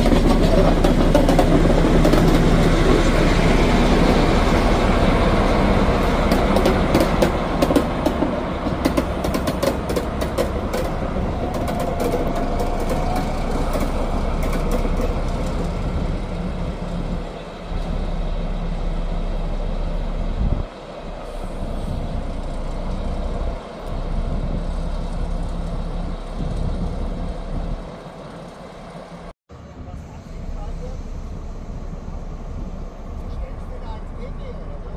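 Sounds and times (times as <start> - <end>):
wheels clicking over rail joints: 0.0 - 18.3
diesel locomotive engine humming: 0.0 - 34.9.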